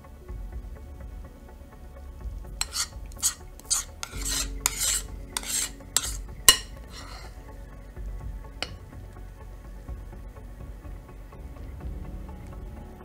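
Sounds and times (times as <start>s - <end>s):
spoon clinking against bowl: 2.6s - 7.3s
metal spoon scraping bowl: 2.6s - 7.4s.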